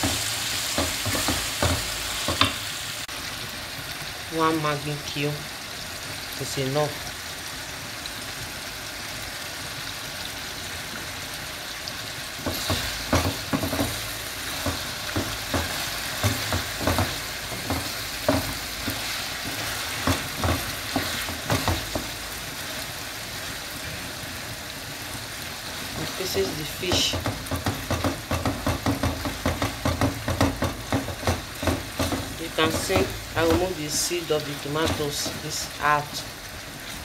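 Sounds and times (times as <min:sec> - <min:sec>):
wooden spoon knocking and scraping pot: 0:00.0 - 0:02.7, 0:12.4 - 0:22.2, 0:26.0 - 0:36.2
food sizzling in oil: 0:00.0 - 0:37.0.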